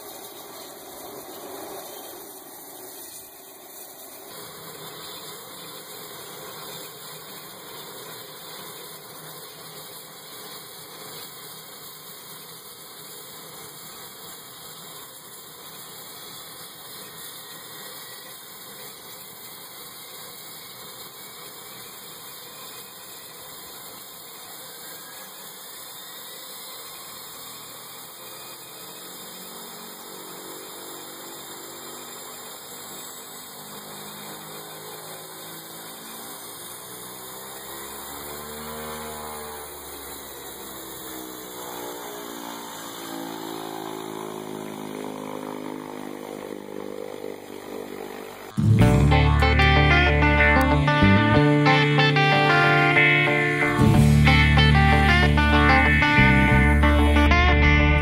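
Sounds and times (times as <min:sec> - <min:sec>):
faint rising tone: 0:48.6 - 0:58.0.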